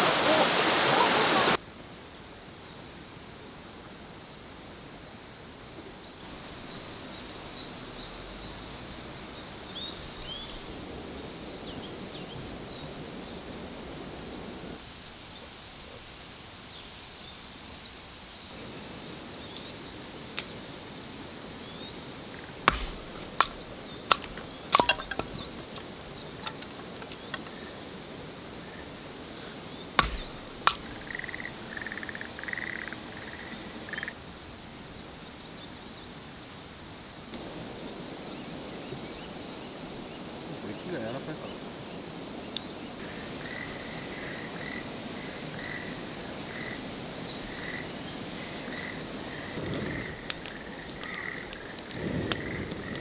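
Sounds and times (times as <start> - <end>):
bird chirps: 21.6 - 27.7, 29.4 - 34.1
sharp knocks and cracks: 22.6 - 27.5, 30.0 - 31.2.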